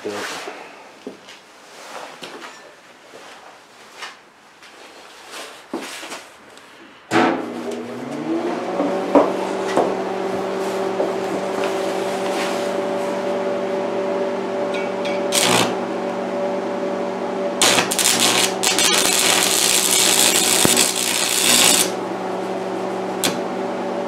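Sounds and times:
welder electrical hum: 0:06.4 - 0:24.0
cooling fan spinning: 0:07.1 - 0:24.0.

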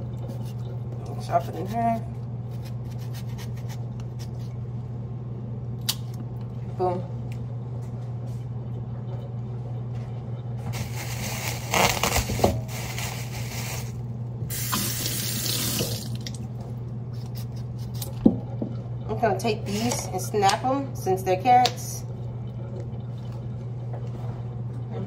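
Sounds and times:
faucet running into a sink: 0:14.5 - 0:16.4.

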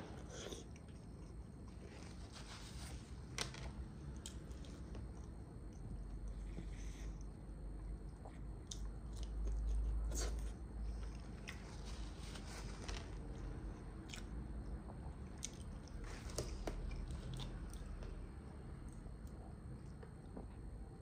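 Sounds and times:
person chewing wetly: 0:00.1 - 0:02.0, 0:04.1 - 0:12.0, 0:13.4 - 0:18.2.

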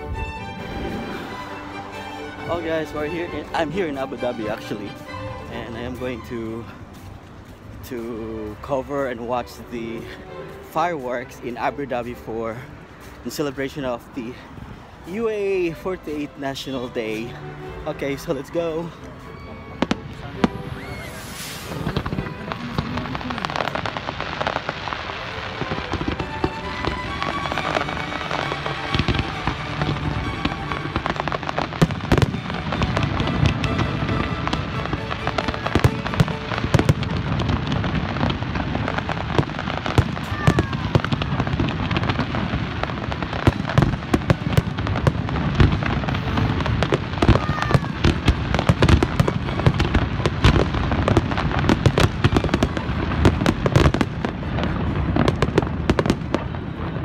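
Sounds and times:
fireworks bangs and crackles: 0:00.0 - 0:57.0
deep fireworks booms: 0:00.2 - 0:04.8, 0:19.8 - 0:57.0.

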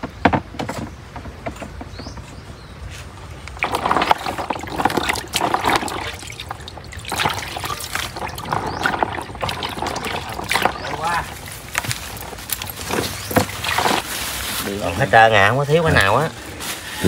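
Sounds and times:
small knocks: 0:00.0 - 0:02.4
water pouring and trickling: 0:03.3 - 0:17.0.

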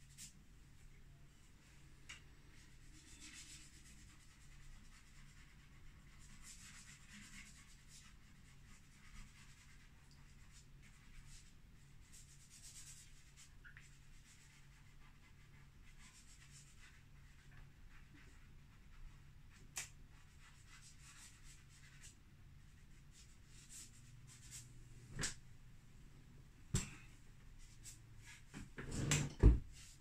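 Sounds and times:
chalk pastel scratching: 0:02.5 - 0:25.4.

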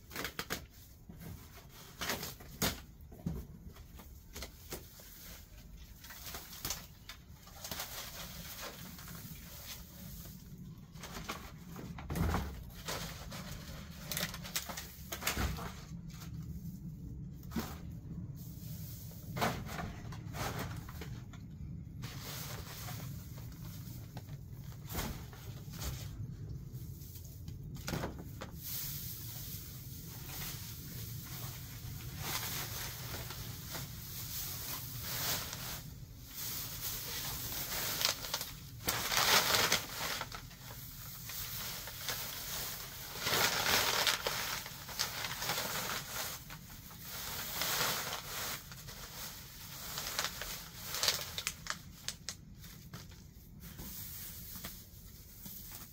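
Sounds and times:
plastic bag rustling: 0:00.0 - 0:55.9
dry grass rustling and crackling: 0:28.4 - 0:55.9.

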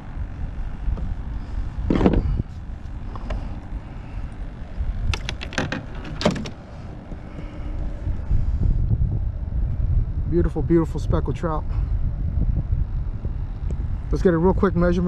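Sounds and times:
steady low rumble: 0:00.0 - 0:15.0
fishing gear clattering on kayak: 0:05.0 - 0:06.6.

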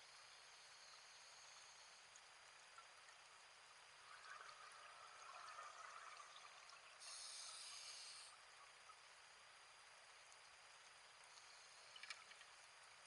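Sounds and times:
underwater bubbling: 0:02.6 - 0:09.1
regulator hiss: 0:06.8 - 0:08.6.

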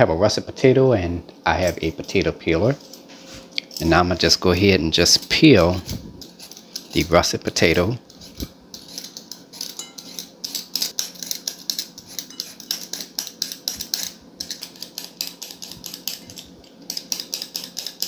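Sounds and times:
peeler scraping potato skin: 0:03.7 - 0:18.0.

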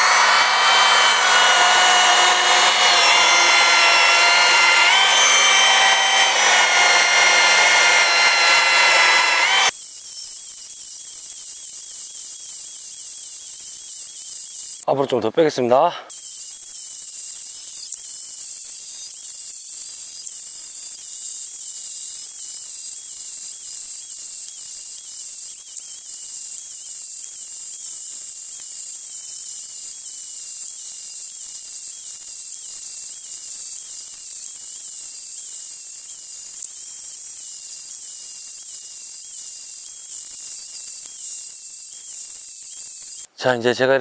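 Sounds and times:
chainsaw cutting log: 0:00.0 - 0:09.7.

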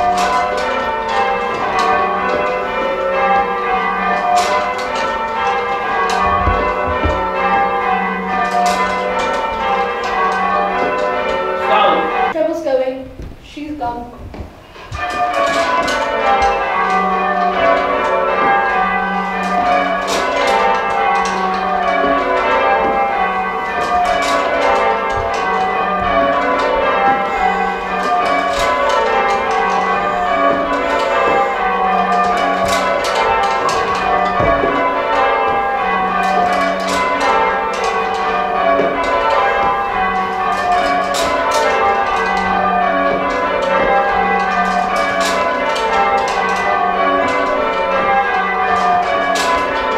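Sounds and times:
church bells ringing: 0:00.0 - 0:13.1, 0:13.7 - 0:49.9.

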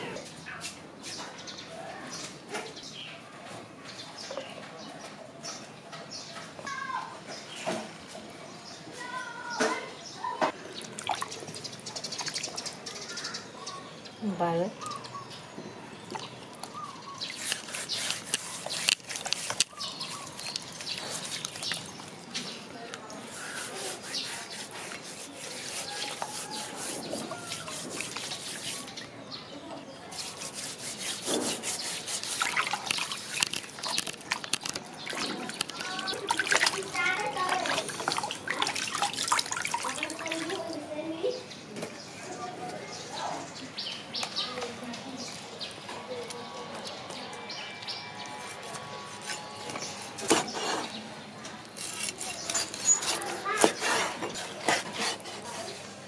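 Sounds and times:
water splashing: 0:10.8 - 0:13.0, 0:16.1 - 0:22.3, 0:30.1 - 0:41.0
hands scrubbing ribs with salt: 0:16.2 - 0:29.1, 0:30.1 - 0:40.8, 0:48.3 - 0:51.0, 0:51.6 - 0:56.0.

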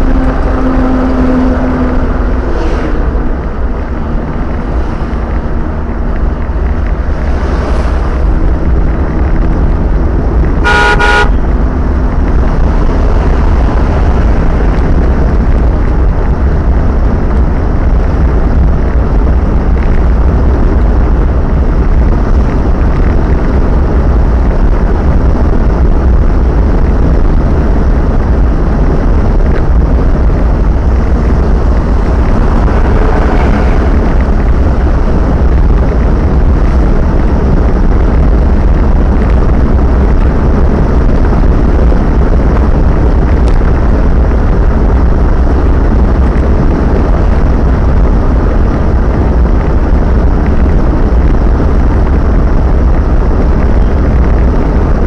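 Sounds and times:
car road and engine rumble: 0:00.0 - 0:55.0
vehicle horn honk: 0:10.6 - 0:11.4.

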